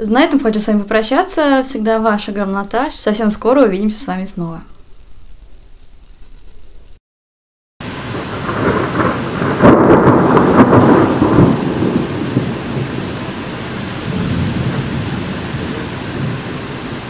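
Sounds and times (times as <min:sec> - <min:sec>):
steady rain: 0:07.8 - 0:17.0
thunder rolling: 0:07.8 - 0:17.0.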